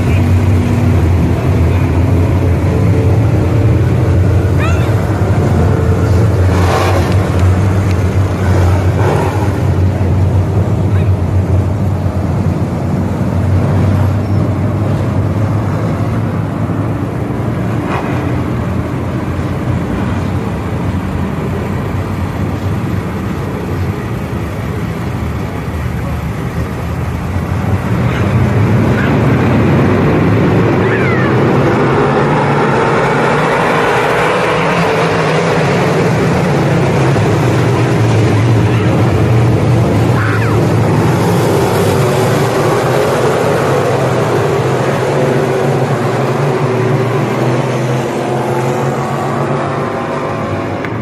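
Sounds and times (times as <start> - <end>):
race car engines droning: 0.0 - 51.0.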